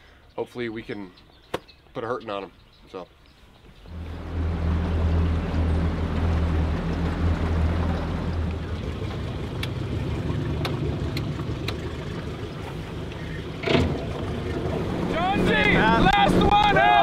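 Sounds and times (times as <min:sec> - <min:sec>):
outboard motor running: 0:03.8 - 0:17.0
light ticks: 0:09.6 - 0:09.8.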